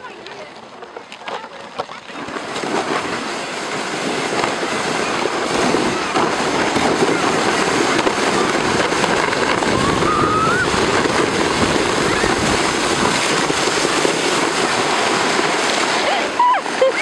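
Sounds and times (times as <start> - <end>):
sled scraping down packed snow: 0.0 - 17.0
wind buffeting microphone: 2.0 - 17.0.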